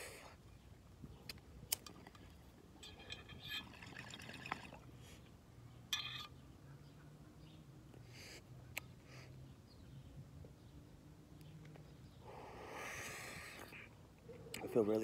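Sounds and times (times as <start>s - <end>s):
water bubbling in a bong: 1.9s - 4.9s.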